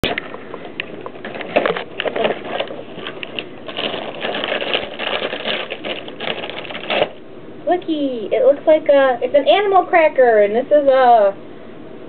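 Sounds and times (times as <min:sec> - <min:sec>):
cardboard box and wrapping crinkling: 0:00.0 - 0:07.2.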